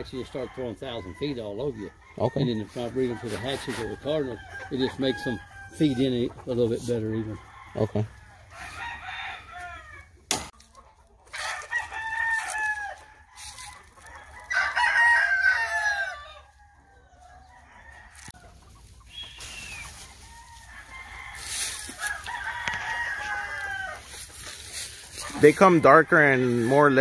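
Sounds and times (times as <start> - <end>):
roosters crowing: 0.0 - 10.6, 11.2 - 27.0
hens clucking: 0.0 - 27.0.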